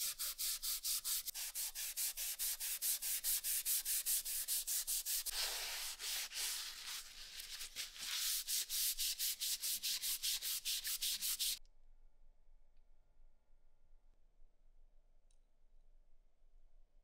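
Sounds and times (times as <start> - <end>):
abrasive pad scrubbing steel: 0.0 - 11.6.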